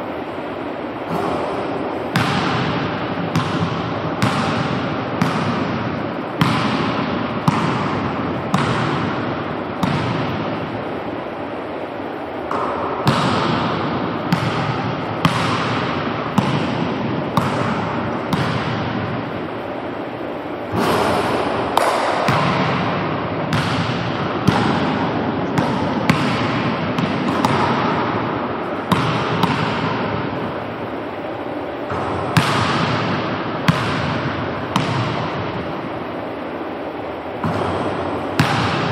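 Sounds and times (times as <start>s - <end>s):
steady background hiss: 0.0s - 38.9s
basketball bouncing on hardwood floor: 2.1s - 5.8s, 6.4s - 9.1s, 9.8s - 10.4s, 12.5s - 18.8s, 22.3s - 24.9s, 25.6s - 27.9s, 28.9s - 30.1s, 31.9s - 35.4s, 37.4s - 38.9s.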